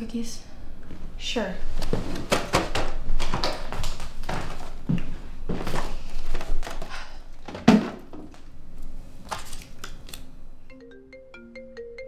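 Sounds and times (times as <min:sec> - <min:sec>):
phone ringtone melody: 0:10.7 - 0:12.0.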